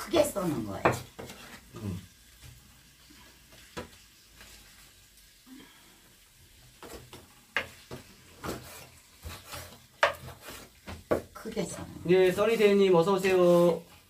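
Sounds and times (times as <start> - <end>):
wooden spatula scraping frying pan: 0.0 - 5.2, 6.5 - 14.0
knife chopping on wooden board: 0.8 - 1.5, 7.6 - 11.3.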